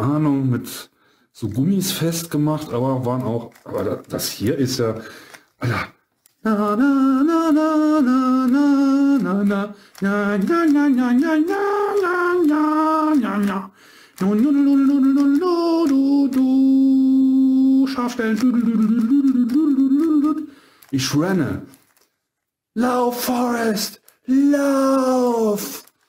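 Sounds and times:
man singing wordless tune: 0:06.4 - 0:21.7, 0:22.7 - 0:25.9.

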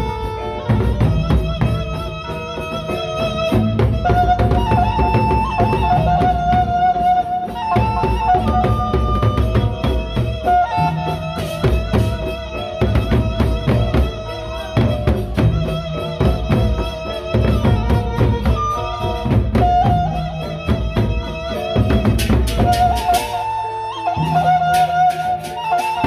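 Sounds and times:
barrel drums beaten with sticks: 0:00.0 - 0:26.0
high held melody line: 0:00.0 - 0:26.0.

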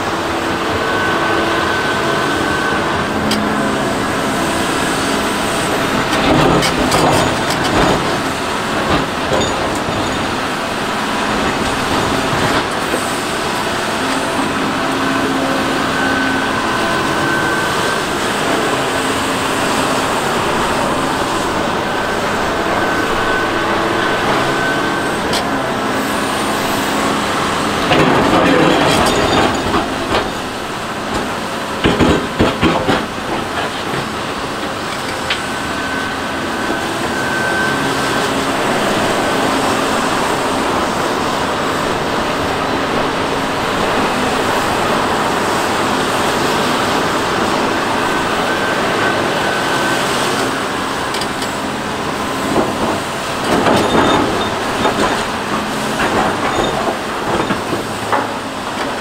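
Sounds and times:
excavator engine and hydraulic drone: 0:00.0 - 0:59.0
metallic clanks and knocks: 0:31.1 - 0:34.1.

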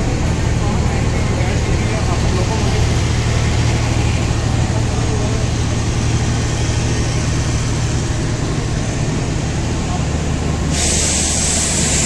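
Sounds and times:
diesel generator humming: 0:00.0 - 0:12.0
loud steady hiss: 0:10.6 - 0:12.0.

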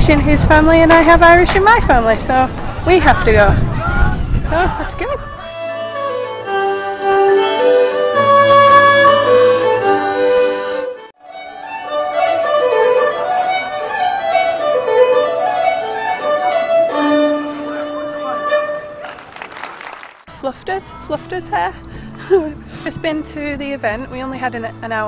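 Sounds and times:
folk fiddle tune: 0:04.9 - 0:19.0.

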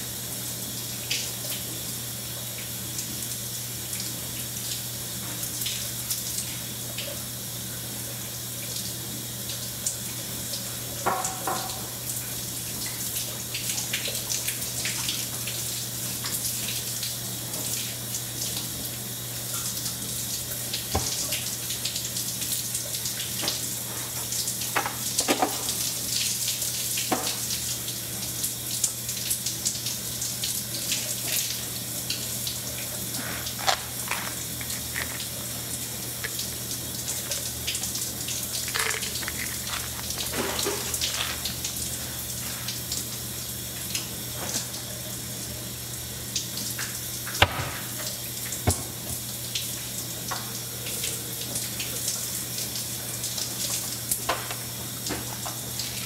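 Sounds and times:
water running from tap: 0:00.0 - 0:56.0
items clattering on counter: 0:38.6 - 0:41.6.

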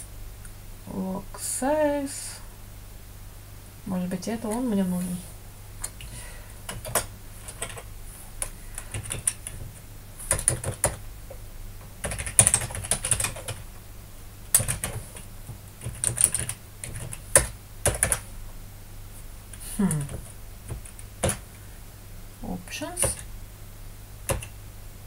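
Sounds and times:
typing on computer keyboard: 0:06.7 - 0:11.0, 0:12.0 - 0:13.6, 0:14.5 - 0:15.2, 0:15.8 - 0:18.2, 0:19.5 - 0:21.4, 0:23.0 - 0:23.3, 0:24.3 - 0:24.6.

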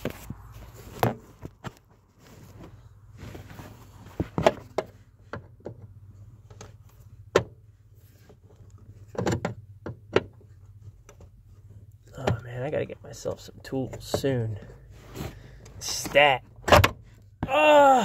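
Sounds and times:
handling bumps: 0:00.0 - 0:11.4.

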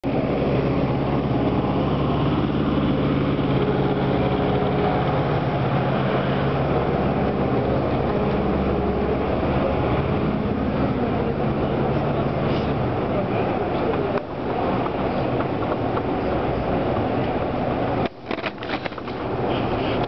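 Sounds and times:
street noise: 0:00.0 - 0:20.0
traffic engine hum: 0:00.0 - 0:20.0.

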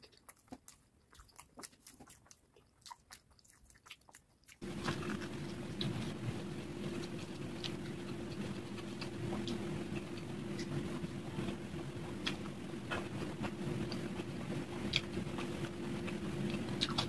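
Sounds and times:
steady low hum: 0:04.6 - 0:17.0.

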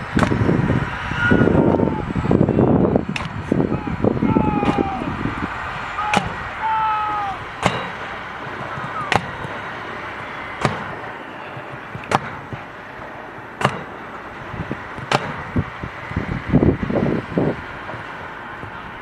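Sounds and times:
truck engine: 0:00.0 - 0:19.0
canisters firing pops: 0:07.6 - 0:09.6, 0:10.6 - 0:11.0, 0:11.6 - 0:12.7, 0:13.6 - 0:13.9, 0:15.0 - 0:15.5.

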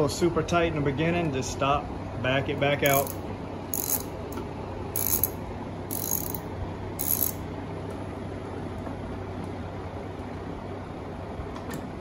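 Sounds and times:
ratchet wrench clicking: 0:02.8 - 0:04.2, 0:05.0 - 0:07.4.

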